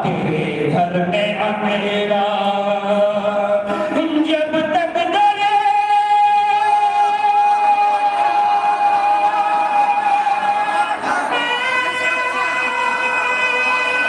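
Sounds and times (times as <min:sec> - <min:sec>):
man chanting into microphone: 0:00.0 - 0:14.0.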